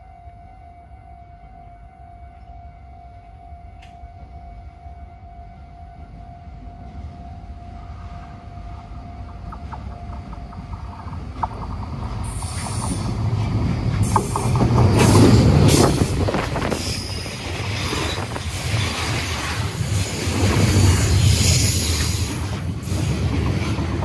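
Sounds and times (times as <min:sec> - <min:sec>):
locomotive engine rumble: 0:08.2 - 0:24.0
train wheels clacking: 0:09.2 - 0:24.0
wheel squeal: 0:12.1 - 0:19.6.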